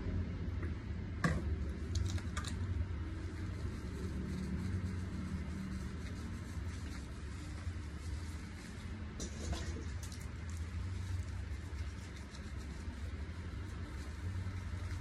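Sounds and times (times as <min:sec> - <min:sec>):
low hum: 0:00.0 - 0:15.0
rubbing fur: 0:03.0 - 0:15.0.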